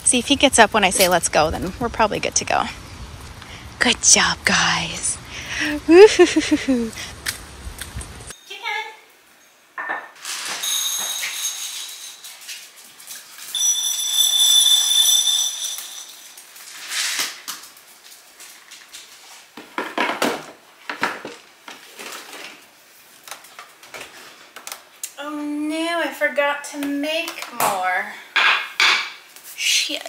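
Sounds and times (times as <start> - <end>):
dishes and cutlery clattering: 9.8 - 12.6
high steady ringing squeal: 10.6 - 12.4, 13.5 - 16.8.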